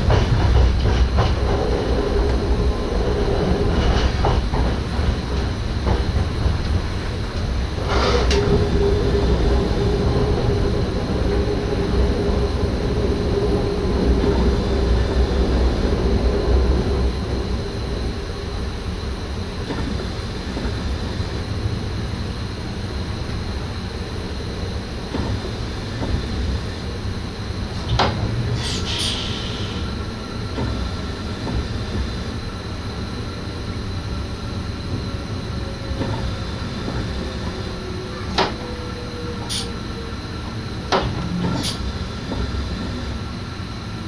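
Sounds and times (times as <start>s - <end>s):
track clacks: 0.0s - 18.1s
electric train rumble: 0.0s - 44.0s.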